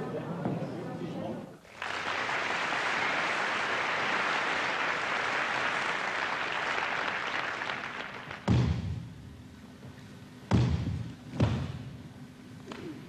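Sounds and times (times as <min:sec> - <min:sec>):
large audience applauding: 0:01.7 - 0:08.5.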